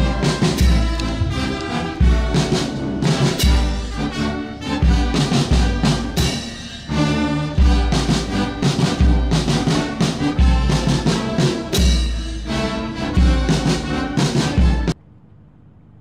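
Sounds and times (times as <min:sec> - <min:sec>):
brass band playing slow music: 0:00.0 - 0:15.0
deep drum strokes: 0:00.0 - 0:15.0.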